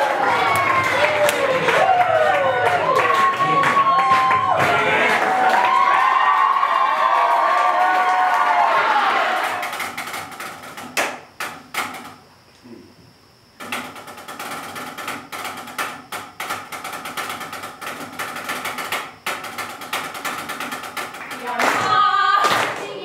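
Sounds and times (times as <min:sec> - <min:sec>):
drumsticks tapping practice pad: 0:09.4 - 0:12.2, 0:13.6 - 0:22.8.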